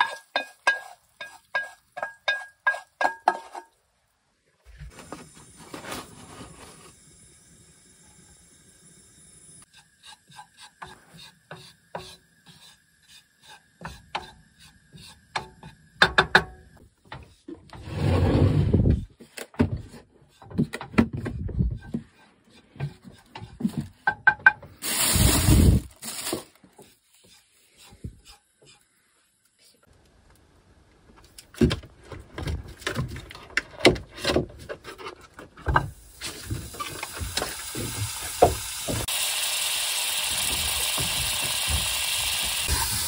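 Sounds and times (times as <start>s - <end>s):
cooler being pulled open: 17.8s - 19.0s
containers being set down: 24.8s - 26.5s.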